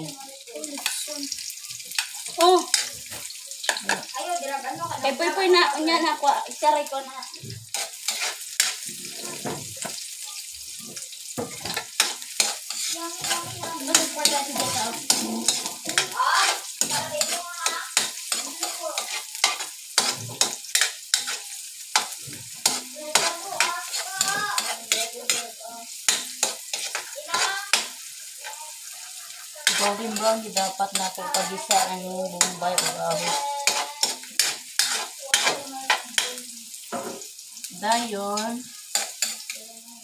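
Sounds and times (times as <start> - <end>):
onion sizzling in hot oil: 0.0 - 40.0
metal spatula scraping a wok: 7.6 - 9.9, 11.4 - 36.4, 37.2 - 39.6.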